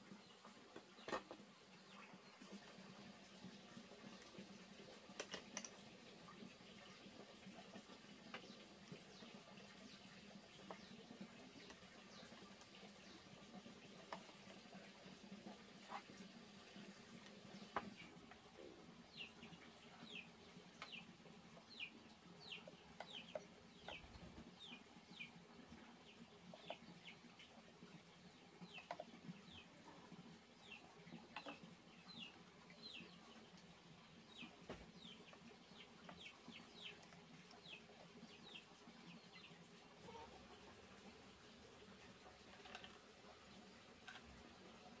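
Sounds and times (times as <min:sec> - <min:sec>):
young chickens peeping: 0:17.5 - 0:27.6, 0:28.2 - 0:40.8.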